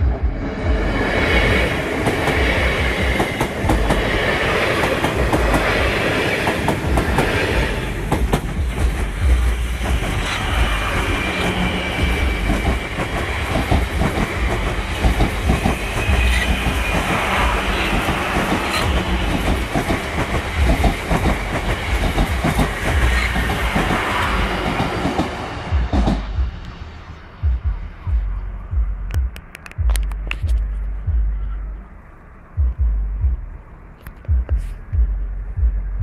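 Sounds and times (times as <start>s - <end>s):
train low rumble: 0.0s - 36.0s
train wheels clattering over rails: 0.7s - 26.6s.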